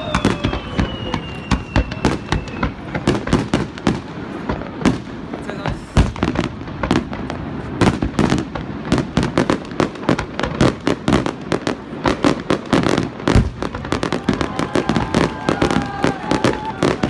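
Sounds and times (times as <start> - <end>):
fireworks bursting with sharp bangs: 0.0 - 17.0.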